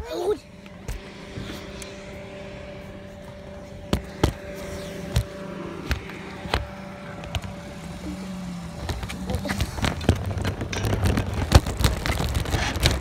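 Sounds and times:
low steady hum: 0.0s - 13.0s
shopping cart wheels rumbling: 4.1s - 13.0s.

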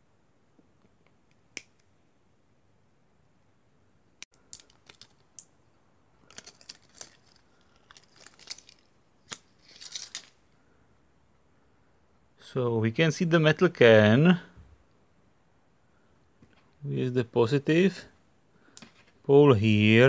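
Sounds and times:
plastic wrap tearing: 4.4s - 5.4s, 6.2s - 10.4s.

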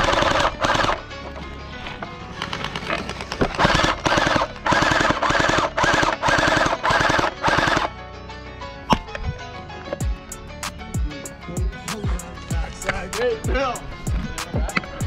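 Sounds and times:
background music: 0.0s - 15.0s
gel blaster full-auto bursts: 3.6s - 7.9s.

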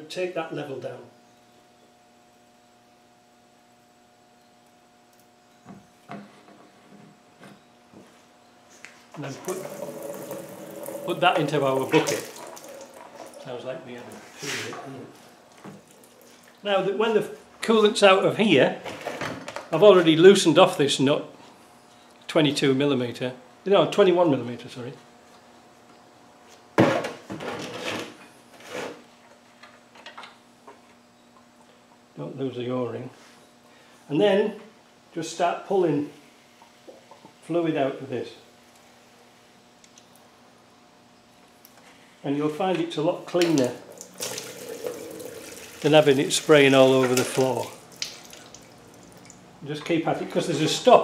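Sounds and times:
faint electrical hum: 0.0s - 51.0s
syringe drawing fluid: 9.5s - 13.4s.

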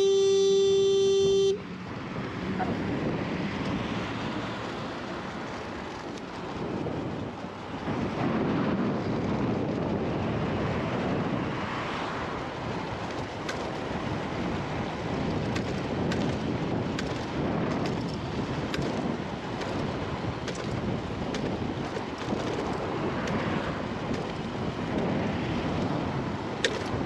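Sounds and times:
wind rushing over microphone: 1.2s - 27.0s.

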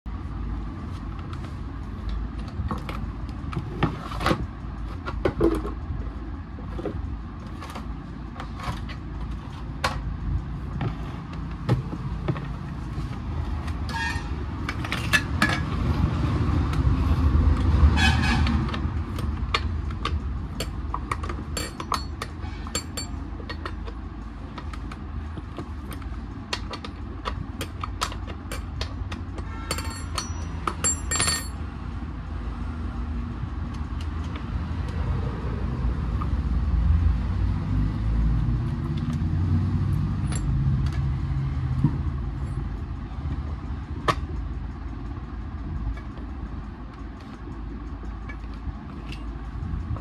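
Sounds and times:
low background rumble: 40.0s - 50.0s.

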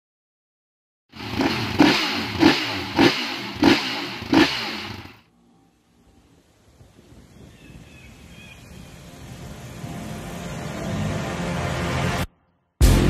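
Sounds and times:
motorcycle engine revving: 1.1s - 5.3s.

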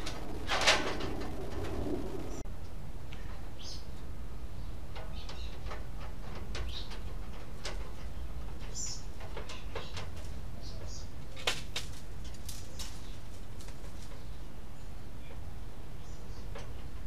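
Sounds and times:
steady low rumble: 0.0s - 3.0s
small birds chirping: 3.2s - 5.7s, 8.0s - 11.4s, 12.6s - 17.0s.

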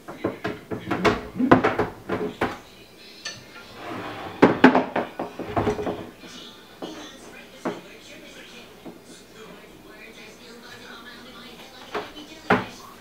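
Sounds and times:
scraping rub: 0.8s - 1.8s, 3.7s - 4.6s.

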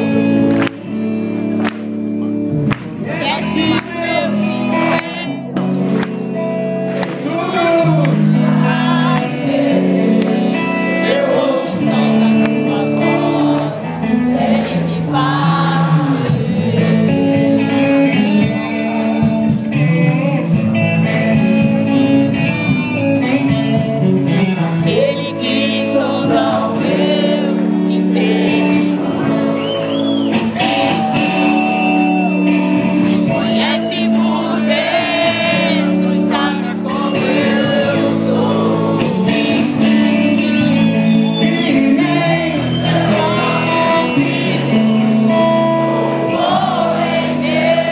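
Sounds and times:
live band with singing: 0.0s - 47.9s.

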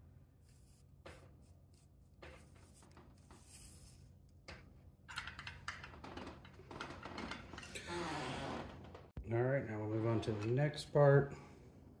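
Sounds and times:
rubbing and handling noises: 0.4s - 4.4s.

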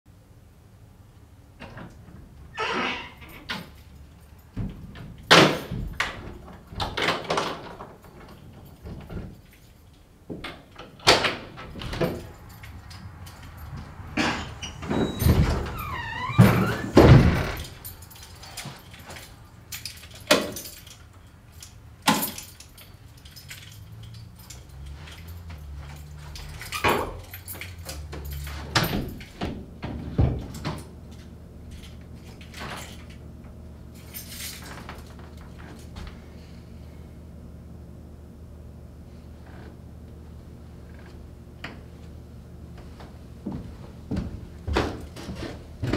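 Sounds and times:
creaking hinge squeal: 2.5s - 3.6s, 14.4s - 17.7s.

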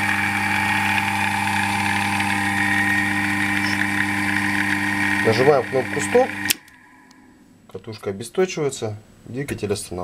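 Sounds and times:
electric motor humming: 0.0s - 7.2s.

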